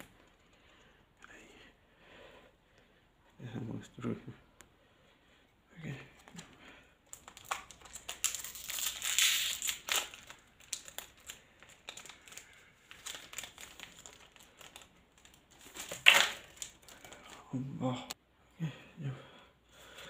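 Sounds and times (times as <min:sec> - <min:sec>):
card pack wrapper crinkling: 0:07.1 - 0:17.4.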